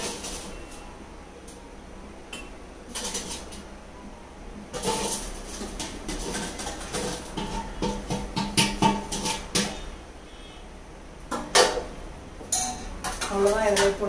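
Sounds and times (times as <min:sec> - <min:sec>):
metal spoon scraping bowl: 0:04.7 - 0:10.0.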